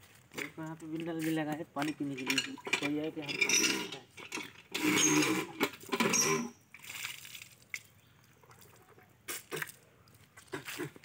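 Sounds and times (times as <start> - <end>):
hand pump being worked: 1.5 - 6.9
water dripping: 6.7 - 10.5
water splashing on stone: 6.7 - 11.0.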